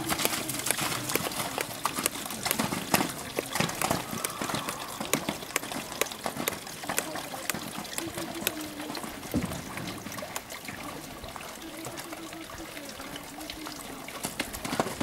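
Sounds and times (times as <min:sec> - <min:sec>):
horse hoofbeats on sand: 0:00.0 - 0:09.5.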